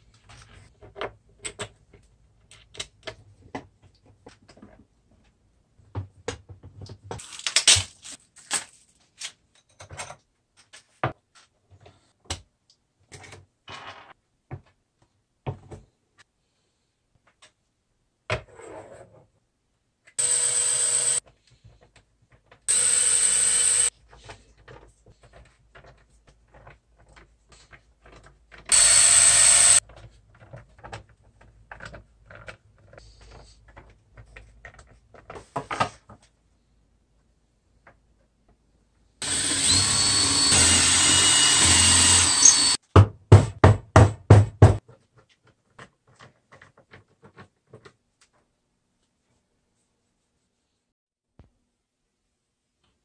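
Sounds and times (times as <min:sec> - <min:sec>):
cordless drill running: 0:20.2 - 0:21.2, 0:22.7 - 0:23.9, 0:28.7 - 0:29.8, 0:39.2 - 0:42.8.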